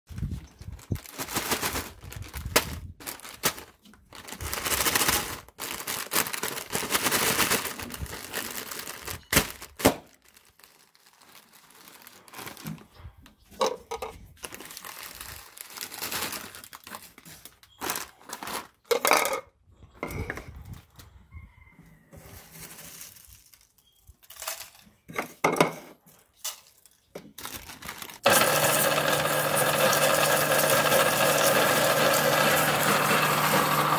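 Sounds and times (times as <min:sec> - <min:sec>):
foil chip bags crinkling: 0:00.1 - 0:19.3, 0:22.6 - 0:24.9, 0:26.1 - 0:33.9
chips rattling: 0:26.5 - 0:33.9.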